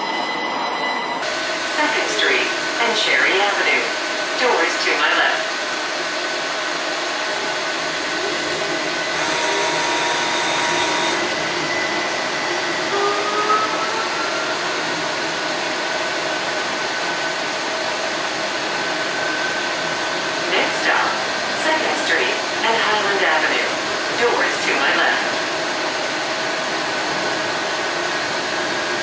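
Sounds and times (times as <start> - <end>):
streetcar interior hum: 7.4 - 29.0.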